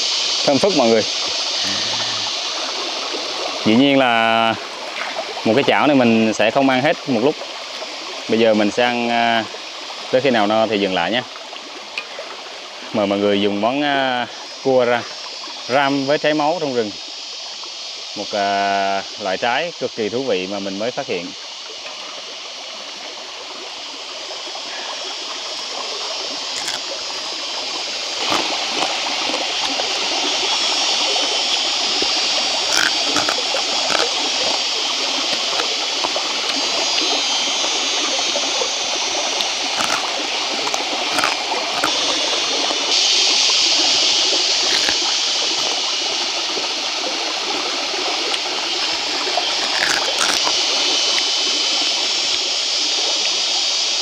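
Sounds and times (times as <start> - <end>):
stream running over rocks: 0.0 - 54.0
crab shell cracking and chewing: 26.5 - 30.0, 32.6 - 34.7, 35.3 - 35.7, 39.6 - 42.8, 44.5 - 45.8, 48.3 - 50.6.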